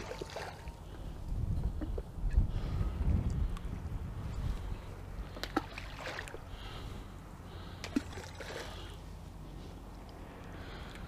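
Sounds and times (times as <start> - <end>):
low wind rumble on microphone: 0.0 - 7.8
bait splashing into river: 5.4 - 6.4, 7.8 - 8.8.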